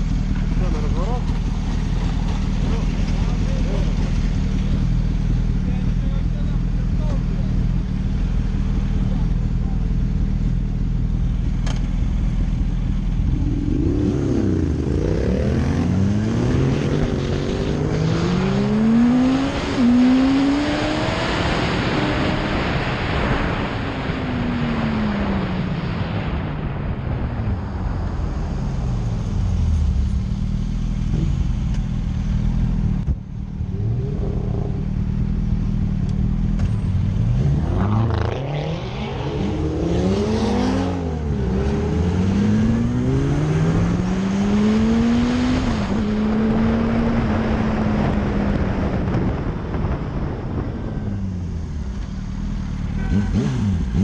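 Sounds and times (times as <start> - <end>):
motorcycle engine accelerating: 0.0 - 23.8, 28.6 - 54.0
wind rushing past microphone: 37.4 - 52.0.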